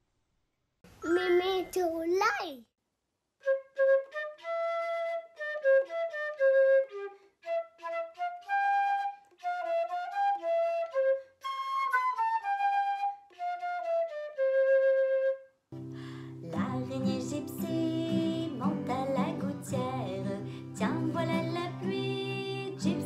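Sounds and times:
flute playing a tune: 3.4 - 15.6.

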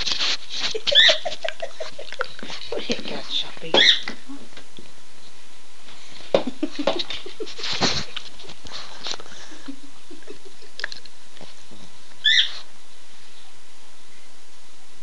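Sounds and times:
rustling: 0.0 - 4.0, 4.6 - 9.7
dog squeaky whine: 12.2 - 12.7.

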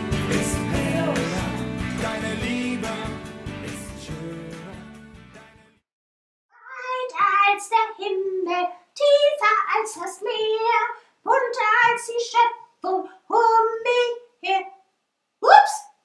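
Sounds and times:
song: 0.0 - 5.7
high-pitched puppet voice singing: 6.6 - 14.8, 15.4 - 15.9.

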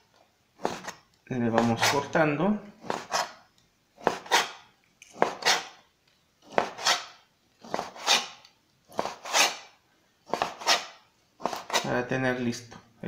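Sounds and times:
knife slicing meat on cutting board: 4.0 - 4.6, 5.2 - 5.8, 6.5 - 9.7, 10.3 - 11.9.

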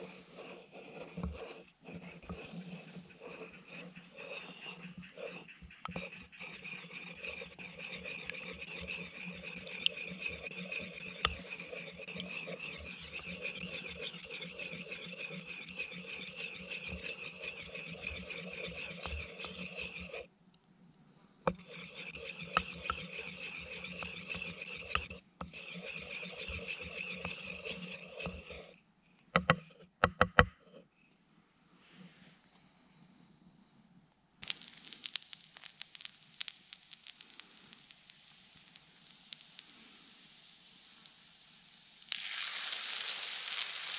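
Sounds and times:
wooden pestle rubbing in bowl: 0.0 - 20.3, 21.5 - 28.8, 29.4 - 29.9.

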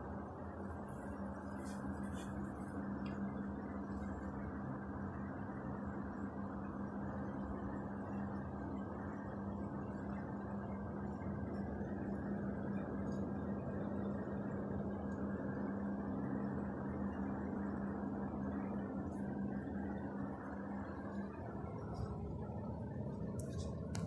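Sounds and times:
aquarium pump humming: 0.0 - 24.0.

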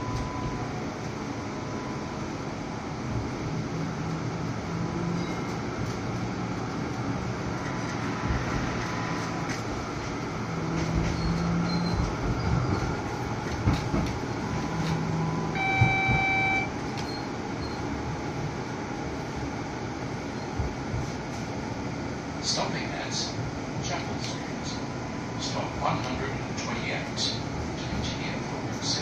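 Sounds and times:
tram motor hum: 0.0 - 29.0
tram rolling rumble: 0.0 - 29.0
wheels knocking on rails: 13.5 - 14.2, 15.7 - 16.4
steady electronic tone: 14.6 - 17.8.

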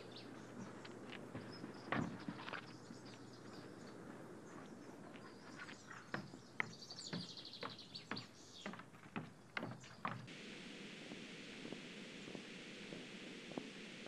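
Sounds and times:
footsteps on wooden stairs: 0.6 - 10.3
steady hiss: 10.2 - 14.0.

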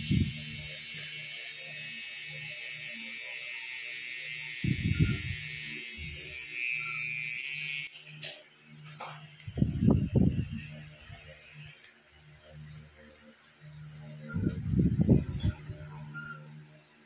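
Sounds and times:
tattoo pen buzzing: 0.0 - 7.9.

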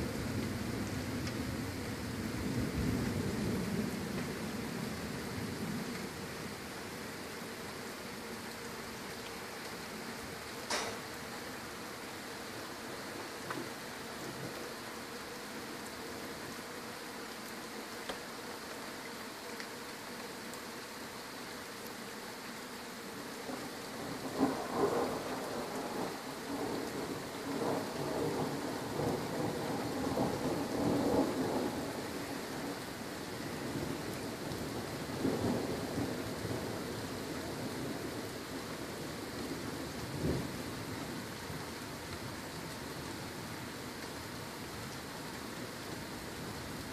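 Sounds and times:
steady rain falling: 0.0 - 46.9
thunder rumbling: 24.0 - 32.0.

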